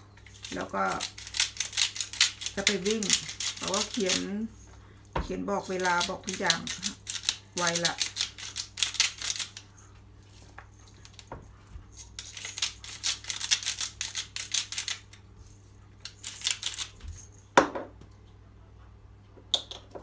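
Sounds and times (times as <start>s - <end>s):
spice grinder crunching: 0.0s - 4.5s, 5.6s - 9.8s, 11.9s - 15.3s, 16.0s - 17.0s.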